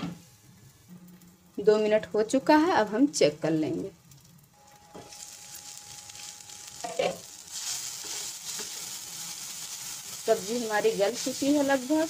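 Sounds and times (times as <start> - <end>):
vegetables sizzling in oil: 0.1 - 12.0
spatula stirring: 6.1 - 12.0.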